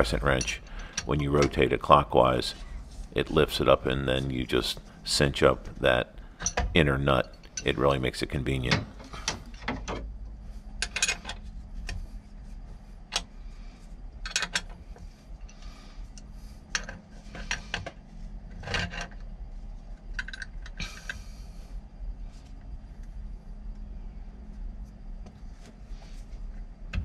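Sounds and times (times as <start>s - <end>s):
low steady hum: 0.0s - 27.0s
wrenches clinking on metal: 10.8s - 11.4s.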